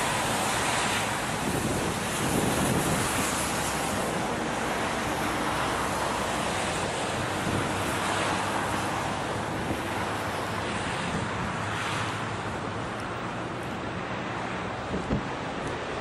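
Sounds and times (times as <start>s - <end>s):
jet airliner engines roaring: 0.0s - 16.0s
wind rumbling on microphone: 0.0s - 16.0s.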